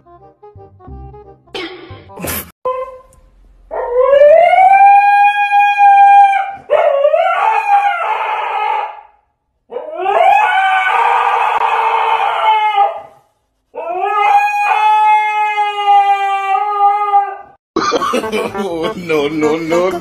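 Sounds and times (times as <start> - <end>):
husky howling: 3.7 - 13.2, 13.8 - 17.6.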